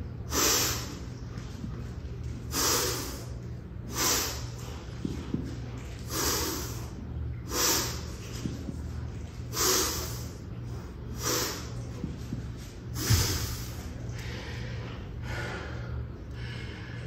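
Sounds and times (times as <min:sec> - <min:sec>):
sharp hissing exhalations: 0:00.3 - 0:01.0, 0:02.5 - 0:03.3, 0:03.9 - 0:04.5, 0:06.1 - 0:06.9, 0:07.5 - 0:08.1, 0:09.5 - 0:10.4, 0:11.2 - 0:11.7
kettlebells thumping on rubber mat: 0:12.0 - 0:13.6.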